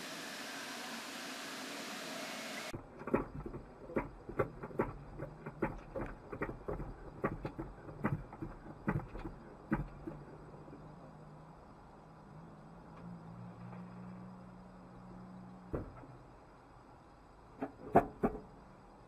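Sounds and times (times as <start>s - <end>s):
steady hiss: 0.0s - 2.8s
knocks and clicks through car body: 3.0s - 10.3s.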